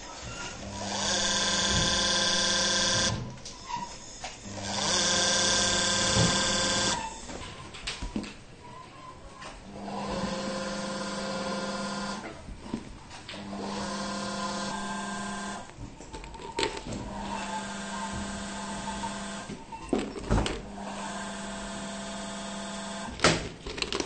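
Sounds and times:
machine motor humming: 0.0s - 7.4s, 9.7s - 12.3s, 13.3s - 15.7s, 17.1s - 19.5s, 20.6s - 23.1s.

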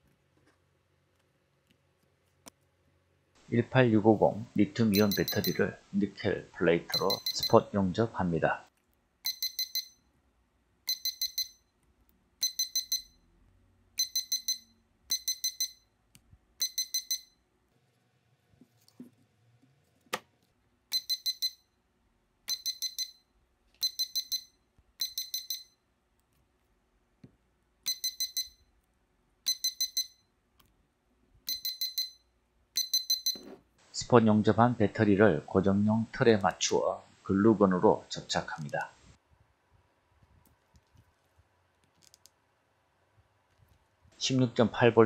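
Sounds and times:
spot welder high beeps: 5.0s - 5.6s, 7.0s - 7.6s.

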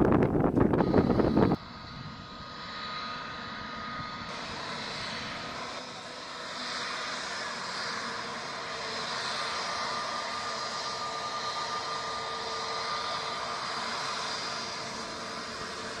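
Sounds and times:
wind on microphone: 0.0s - 2.2s
jet engines whining: 0.0s - 16.0s.

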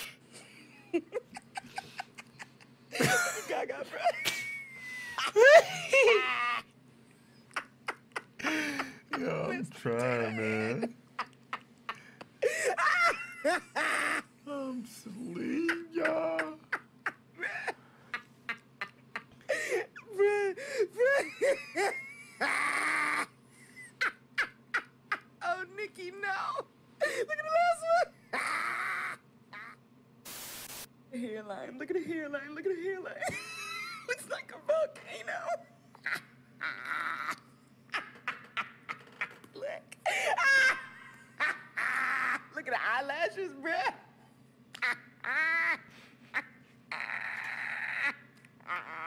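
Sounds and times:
man laughing squeakily: 21.0s - 24.9s, 36.0s - 42.5s, 44.8s - 49.0s.

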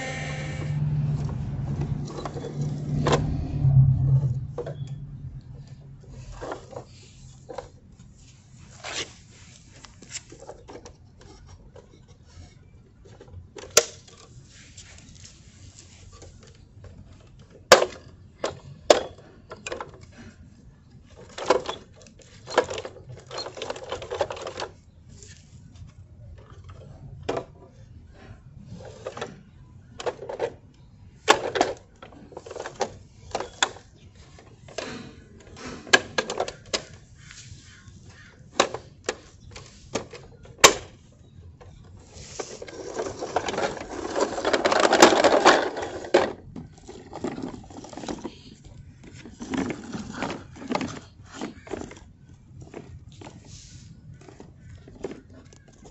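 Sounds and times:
plastic toys clicking and rattling: 5.6s - 7.8s, 9.7s - 24.9s, 28.7s - 55.9s.

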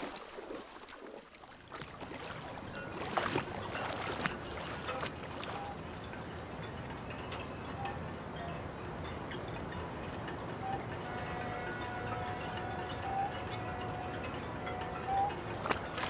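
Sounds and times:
water splashing: 0.0s - 6.6s, 15.5s - 16.0s.

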